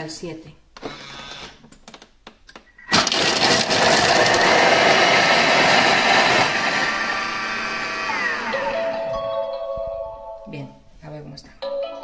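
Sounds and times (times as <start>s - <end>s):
food processor blade whirring: 2.9s - 9.0s.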